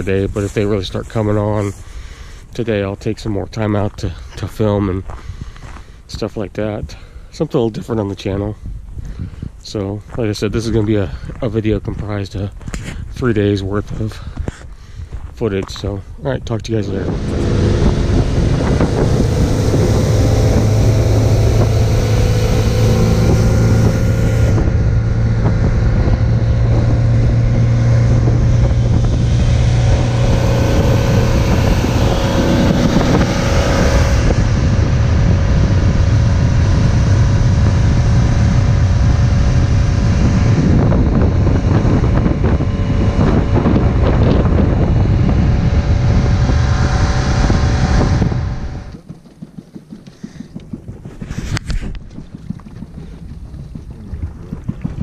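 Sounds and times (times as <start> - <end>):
wind buffeting microphone: 0.0 - 55.0
motorboat engine running: 15.5 - 55.0.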